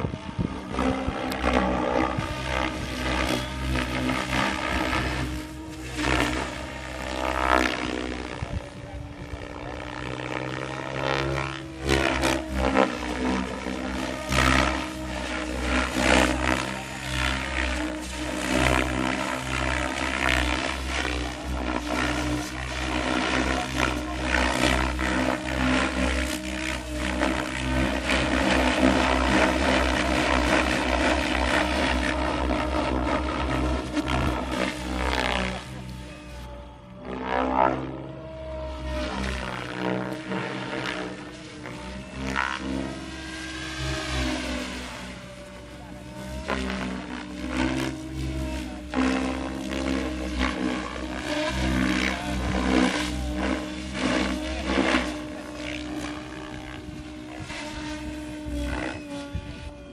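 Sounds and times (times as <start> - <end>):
helicopter rotor blades whooshing: 0.0 - 59.9
model airplane engine droning: 0.0 - 59.9
steady motor hum: 0.0 - 59.9.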